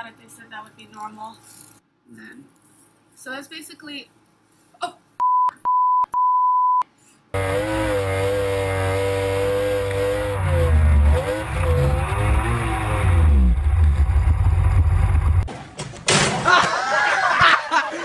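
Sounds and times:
censor bleep beeps: 5.2s - 6.8s
powerboat outboard engine: 7.4s - 15.4s.

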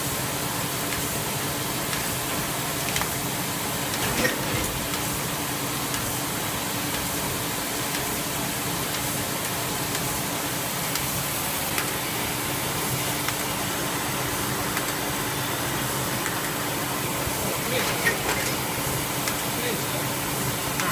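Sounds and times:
binding machine running: 11.6s - 20.9s.

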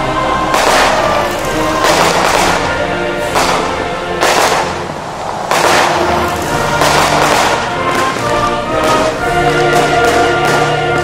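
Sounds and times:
background music with held chords: 0.0s - 11.0s
fireworks bursting and crackling: 0.0s - 11.0s.

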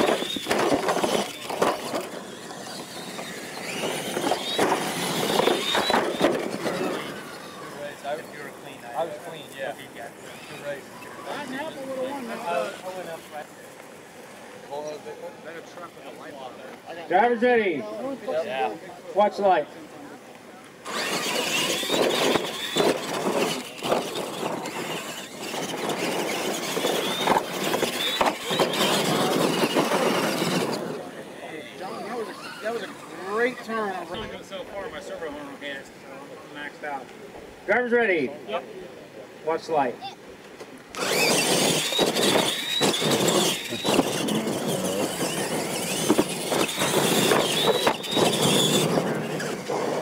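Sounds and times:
sharp thumps: 0.0s - 6.8s, 20.9s - 30.8s, 41.0s - 49.0s
toy truck motor whine: 0.0s - 8.2s, 20.8s - 33.7s, 40.9s - 50.0s
tyres churning dirt: 0.0s - 19.4s, 20.8s - 35.4s, 40.7s - 50.0s
rush of tires and drivetrains: 0.0s - 38.3s, 40.4s - 50.0s.

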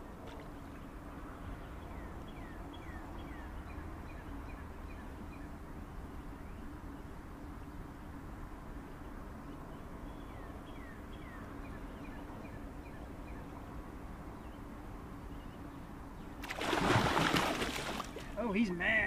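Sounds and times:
faint steady hum: 0.0s - 19.0s
bird chirping: 0.1s - 8.2s, 8.9s - 13.6s
fish splashing in water: 16.4s - 18.4s.

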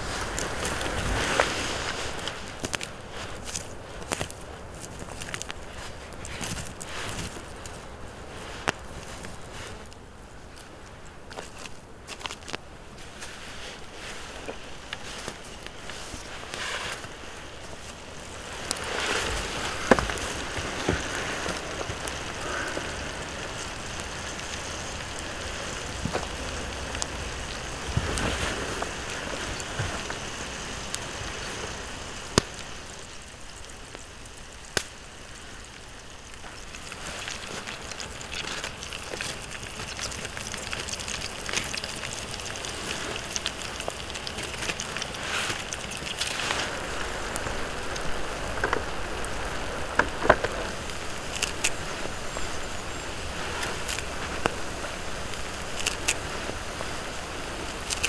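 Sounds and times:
campfire crackling and hissing: 0.0s - 58.0s
sharp fire pops: 32.3s - 35.1s.

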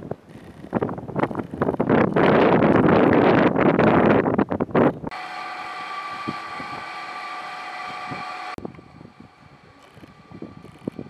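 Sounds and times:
wind buffeting microphone: 0.0s - 11.0s
machine hum with pitched tones: 5.0s - 11.0s.

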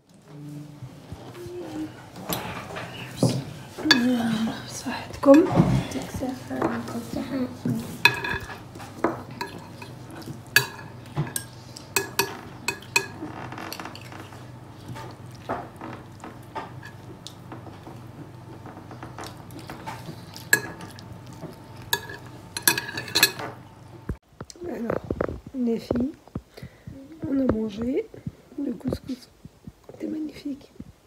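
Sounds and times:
metal spoons clinking on ceramic: 8.0s - 8.6s, 9.4s - 13.3s, 20.3s - 21.0s, 21.8s - 23.5s.

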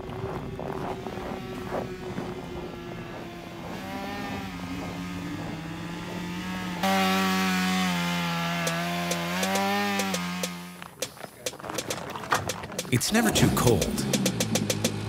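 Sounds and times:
chainsaw cutting ice: 0.0s - 10.8s.

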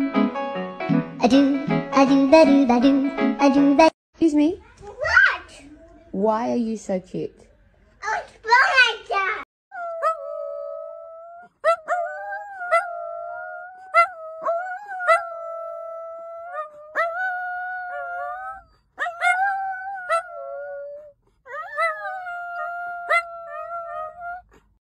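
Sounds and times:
dogs howling: 9.7s - 24.5s.

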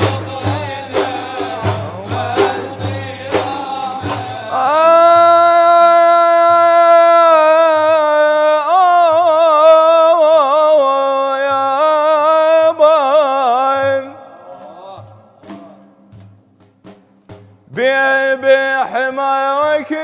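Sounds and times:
soft frame drum beats: 0.0s - 5.1s, 13.8s - 18.0s
man singing ornamented melody: 0.0s - 16.0s, 17.7s - 20.0s.

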